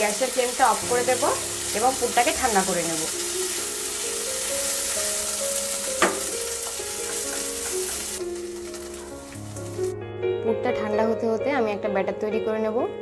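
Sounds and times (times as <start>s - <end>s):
food sizzling in a frying pan: 0.0s - 10.0s
spatula knock: 6.0s - 8.1s.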